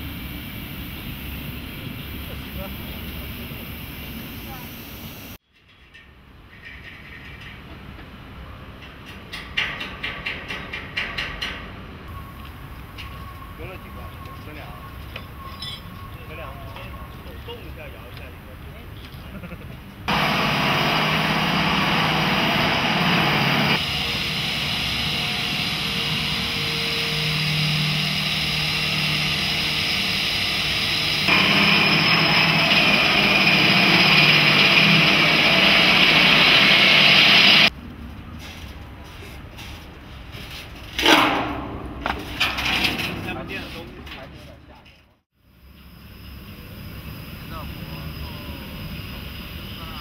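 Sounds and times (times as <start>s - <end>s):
power tool running: 20.1s - 37.7s
metal clank: 40.9s - 44.2s.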